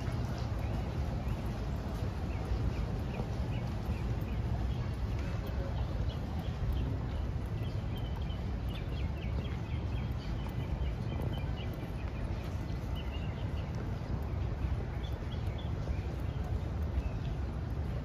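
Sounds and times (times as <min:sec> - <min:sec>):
small birds chirping: 0:00.0 - 0:18.0
steady low rumble: 0:00.0 - 0:18.0.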